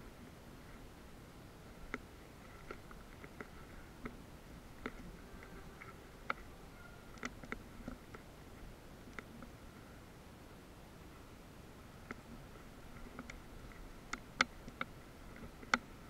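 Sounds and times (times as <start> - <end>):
low hiss: 0.0 - 16.0
sharp clicks and ticks: 7.1 - 8.3, 13.0 - 15.9.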